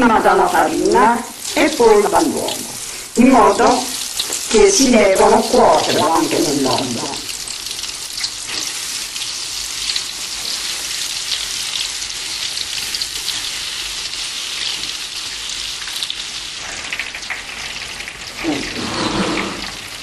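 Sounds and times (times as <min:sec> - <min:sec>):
artichoke pieces sizzling in hot oil: 0:00.0 - 0:20.0.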